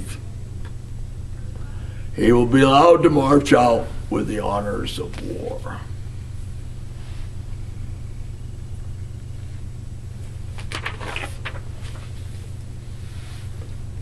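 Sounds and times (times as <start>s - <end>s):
low room hum: 0.0s - 14.0s
soft rustling: 10.2s - 13.8s.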